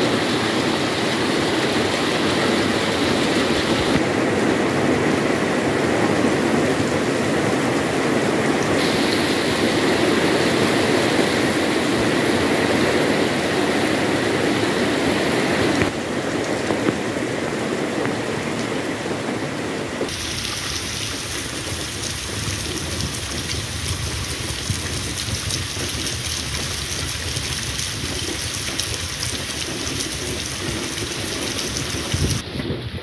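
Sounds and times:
heavy rain on paving: 0:00.0 - 0:33.0
water running and splashing: 0:08.7 - 0:12.8, 0:20.0 - 0:32.4.

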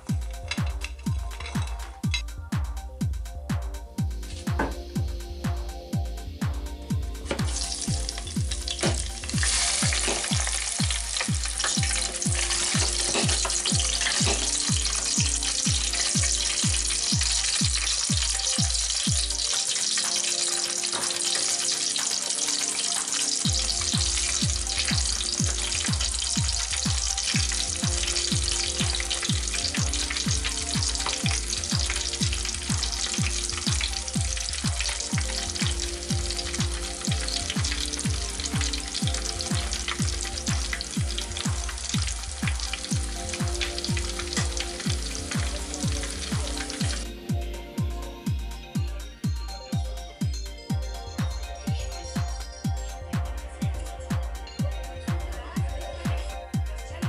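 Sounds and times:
background music with steady beat: 0:00.0 - 0:57.0
fries sizzling in deep fryer oil: 0:04.2 - 0:47.2.

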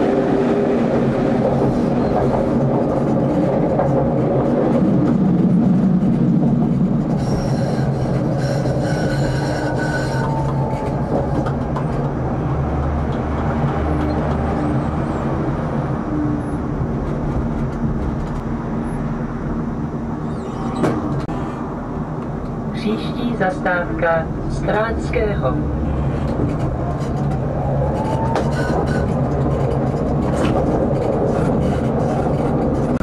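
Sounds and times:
tram rolling on rails: 0:00.0 - 0:33.0
high wheel squeal: 0:07.2 - 0:11.1, 0:20.2 - 0:20.9.

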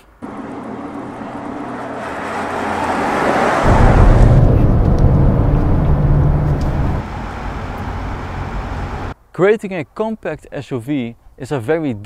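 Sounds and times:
road noise: 0:00.0 - 0:09.2
car driving past: 0:00.2 - 0:09.2
diesel engine rumble in cabin: 0:03.7 - 0:09.1.

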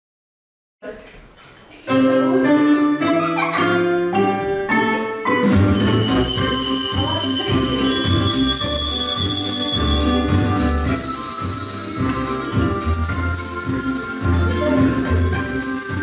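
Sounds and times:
accompaniment music with bass beat: 0:04.2 - 0:16.0
handbells ringing: 0:05.7 - 0:16.0.

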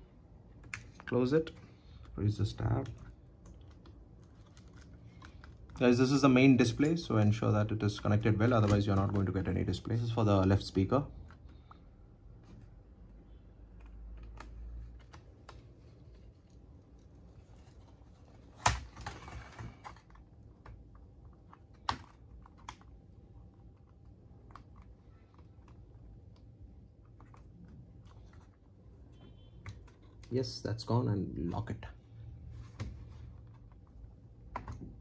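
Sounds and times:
clicks and taps of plastic: 0:32.8 - 0:35.0.

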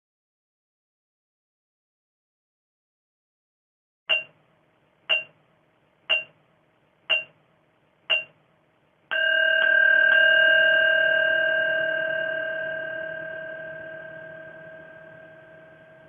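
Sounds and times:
timer pings: 0:04.1 - 0:04.4, 0:05.1 - 0:05.4, 0:06.1 - 0:06.4, 0:07.1 - 0:07.4, 0:08.1 - 0:08.4, 0:09.1 - 0:16.0
long bell tone: 0:09.1 - 0:16.0.

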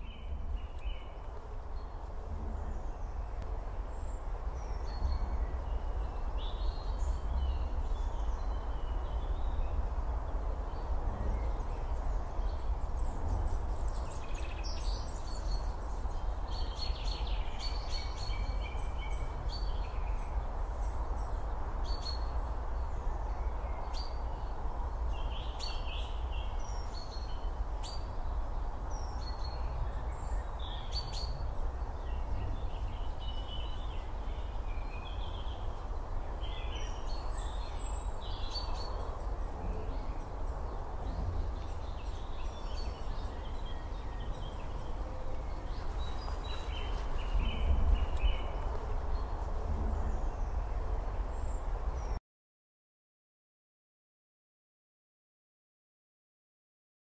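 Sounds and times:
birds chirping: 0:25.1 - 0:52.2.

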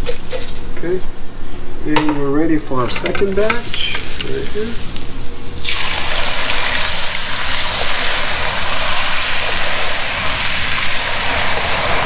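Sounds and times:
hot oil bubbling and sizzling: 0:03.4 - 0:12.0.

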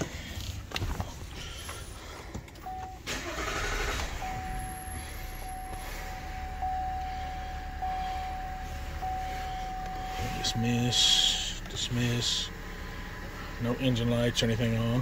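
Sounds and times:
diesel engine starting and idling: 0:00.0 - 0:15.0
steady high tone: 0:02.6 - 0:12.6.

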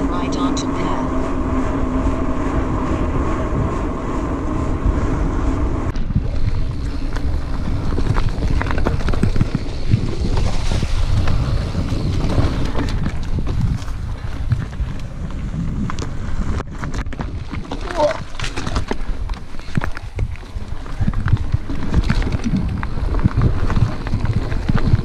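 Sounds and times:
bike tyres humming on pavement: 0:00.0 - 0:25.0
wind rumbling on microphone: 0:00.0 - 0:25.0
bike rattling and knocking on dirt: 0:05.9 - 0:25.0.

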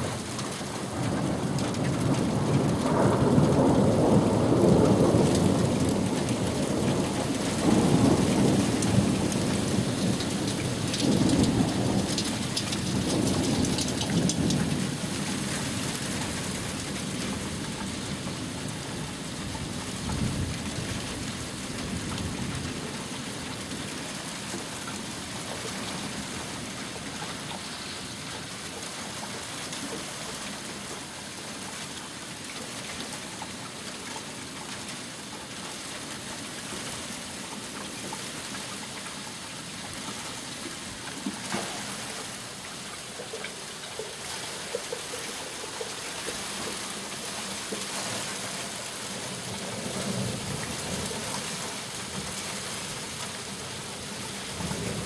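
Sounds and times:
heavy rain: 0:00.0 - 0:55.0.

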